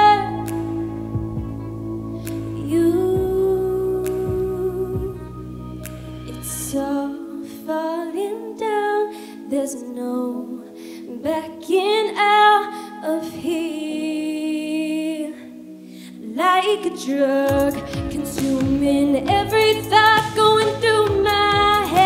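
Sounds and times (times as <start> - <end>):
instrumental accompaniment: 0.0 - 7.4
woman singing into microphone: 0.0 - 22.0.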